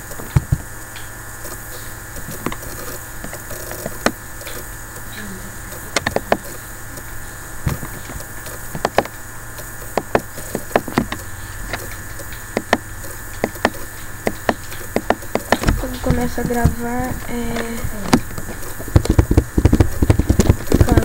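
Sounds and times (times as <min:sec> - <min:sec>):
background hum: 0:00.0 - 0:21.0
computer mouse clicking: 0:07.7 - 0:21.0.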